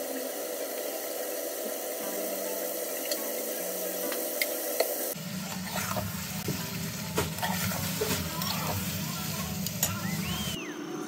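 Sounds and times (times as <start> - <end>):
food sizzling in pan: 0.0 - 10.6
spatula stirring thick sauce: 5.2 - 9.8.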